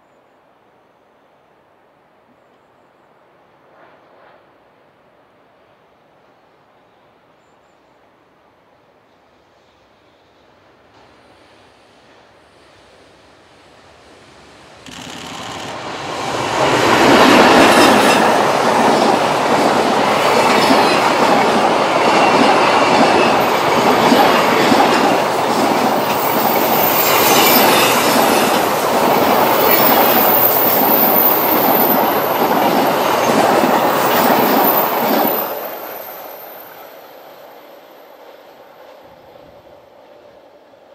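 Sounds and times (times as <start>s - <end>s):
freight train passing: 8.9s - 40.9s.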